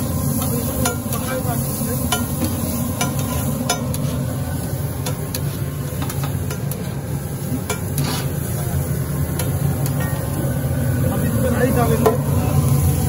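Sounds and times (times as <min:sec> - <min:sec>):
vegetables sizzling in oil: 0:00.0 - 0:13.0
metal spatula scraping griddle: 0:07.7 - 0:08.5.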